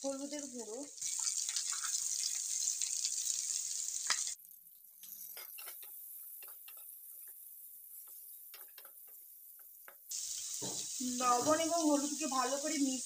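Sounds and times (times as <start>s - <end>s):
vegetables sizzling in hot oil: 0.0s - 13.0s
spatula scraping a pan: 5.1s - 9.8s.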